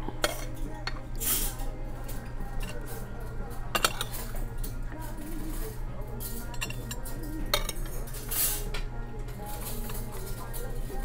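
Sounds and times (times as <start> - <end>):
cutlery clinking on plate: 3.7 - 4.4, 6.2 - 10.6.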